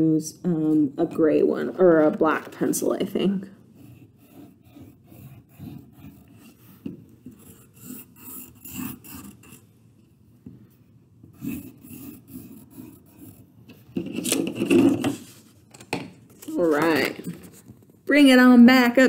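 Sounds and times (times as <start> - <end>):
pencil scribbling on paper: 3.7 - 9.6, 11.3 - 13.5.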